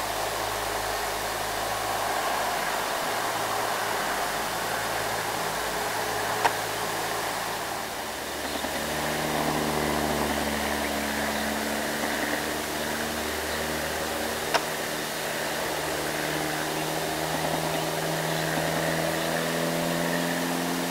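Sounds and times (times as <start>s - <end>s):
road and air noise hiss: 0.0s - 20.9s
truck diesel engines humming: 0.0s - 20.9s.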